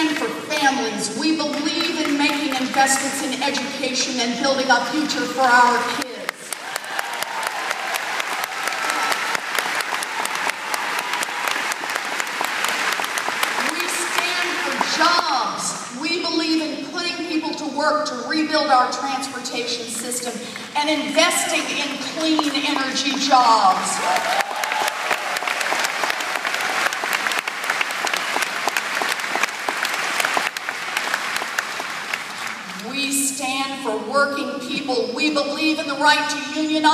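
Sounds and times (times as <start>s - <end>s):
crowd applauding and cheering: 6.4s - 14.9s, 24.0s - 32.8s.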